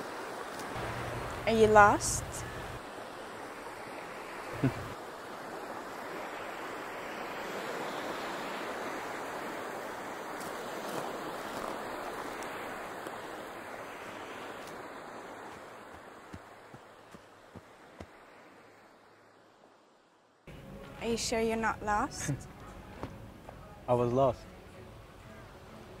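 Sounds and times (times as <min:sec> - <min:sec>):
surf washing on beach: 0:00.0 - 0:20.0.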